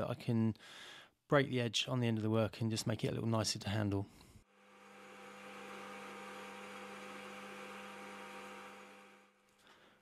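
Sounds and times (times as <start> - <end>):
metal lathe running: 4.6 - 9.3.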